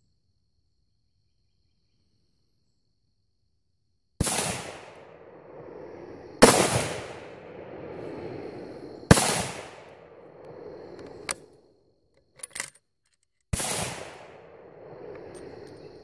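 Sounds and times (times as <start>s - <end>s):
gunshots echoing: 4.2s - 5.6s, 6.4s - 8.3s, 9.1s - 11.3s, 13.6s - 15.0s.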